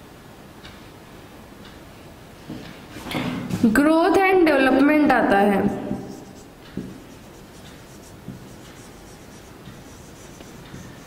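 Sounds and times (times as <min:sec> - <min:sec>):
marker squeaking on whiteboard: 0:06.1 - 0:11.0
soft knocks: 0:06.7 - 0:07.0.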